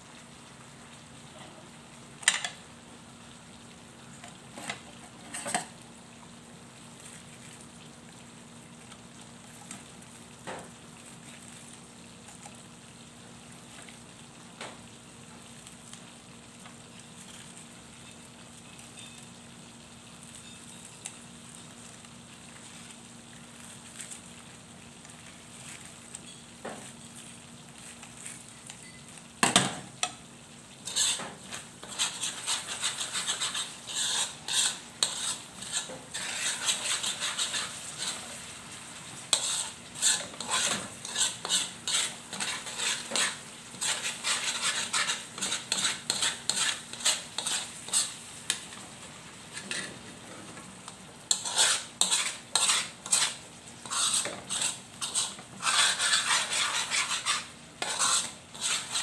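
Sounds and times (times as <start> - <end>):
sauce simmering and sizzling: 0.0 - 59.0
utensil scraping metal pan: 30.8 - 38.2, 39.3 - 48.2, 51.3 - 59.0.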